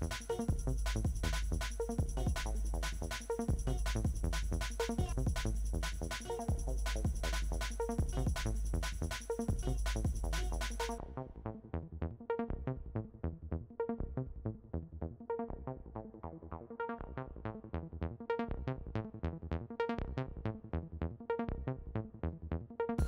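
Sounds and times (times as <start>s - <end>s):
electronic music: 0.0s - 11.0s.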